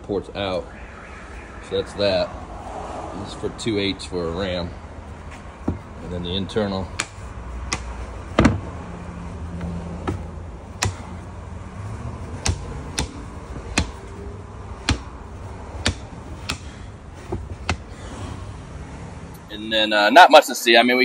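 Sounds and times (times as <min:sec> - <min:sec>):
wooden taps and knocks: 0:05.6 - 0:05.9, 0:06.9 - 0:08.7, 0:09.6 - 0:11.0, 0:12.4 - 0:14.0, 0:15.8 - 0:17.9.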